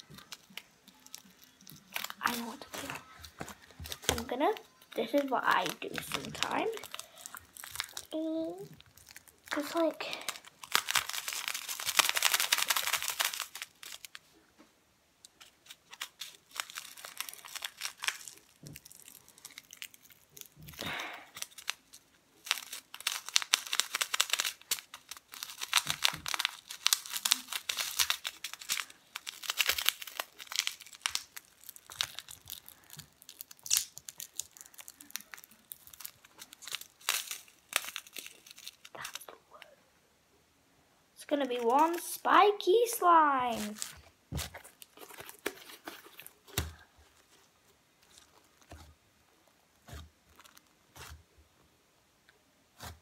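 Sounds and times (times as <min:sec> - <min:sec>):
slime crackling and popping: 0:00.0 - 0:14.3, 0:15.3 - 0:39.4, 0:41.2 - 0:47.4, 0:49.7 - 0:51.3.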